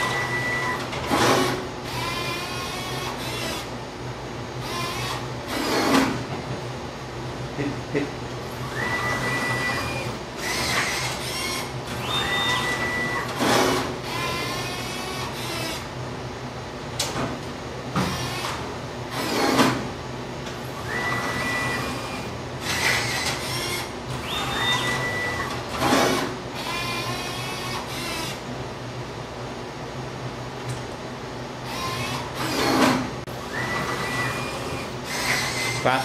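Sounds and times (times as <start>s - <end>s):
motor whine: 0.0s - 3.8s, 8.5s - 16.0s, 20.5s - 28.5s, 31.6s - 36.0s
low machine hum: 0.0s - 36.0s.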